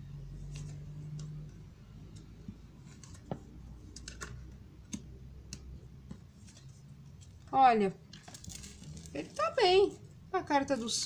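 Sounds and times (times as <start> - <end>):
cards clicking and tapping: 0.4 - 6.6.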